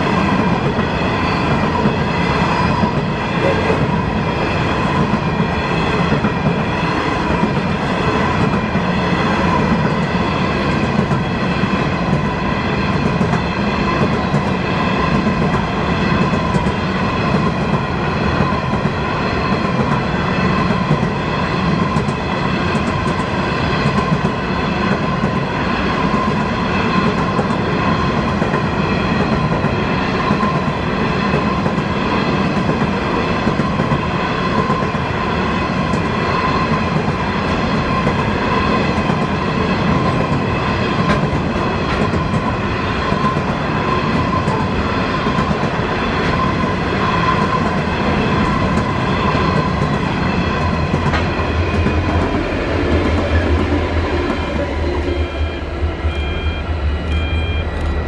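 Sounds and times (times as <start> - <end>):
train wheels rumbling on rail: 0.0 - 58.0
high-pitched tone: 54.6 - 58.0.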